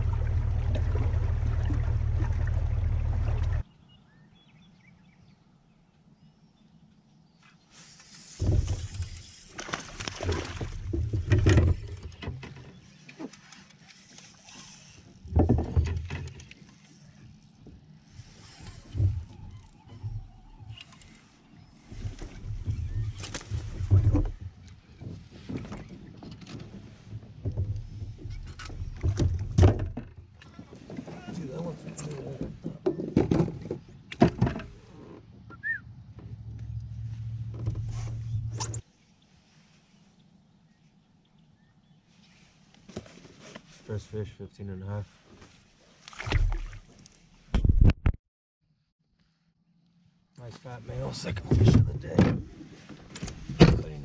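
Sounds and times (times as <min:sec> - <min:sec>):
steady low hum: 0:00.0 - 0:03.6
knocks and thumps on plastic kayak: 0:09.7 - 0:12.8, 0:15.3 - 0:16.4, 0:22.0 - 0:31.3, 0:32.2 - 0:34.8
clothing and fishing gear rustling: 0:12.6 - 0:15.3, 0:37.0 - 0:41.0, 0:42.0 - 0:44.2, 0:45.0 - 0:47.5, 0:52.4 - 0:53.6.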